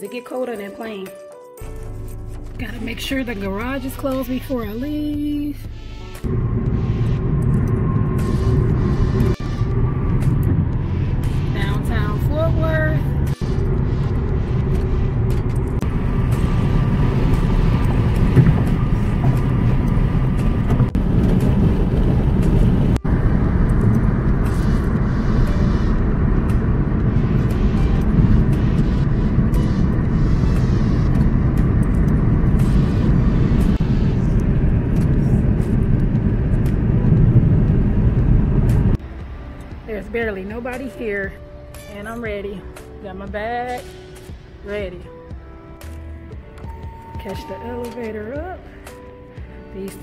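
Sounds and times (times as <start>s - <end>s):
car road rumble from cabin: 1.7s - 48.9s.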